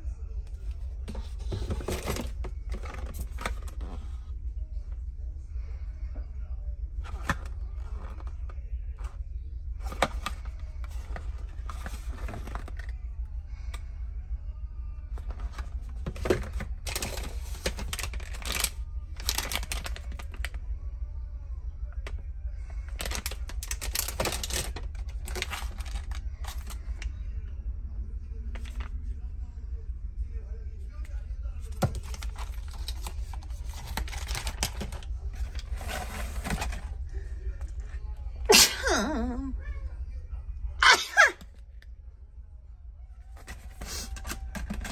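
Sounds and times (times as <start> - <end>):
low hum: 0.0 - 40.8
cardboard and plastic rustling: 0.5 - 4.3, 7.0 - 9.2, 9.8 - 12.9, 15.1 - 20.6, 22.8 - 27.1, 28.5 - 28.9, 31.6 - 37.1, 43.3 - 44.9.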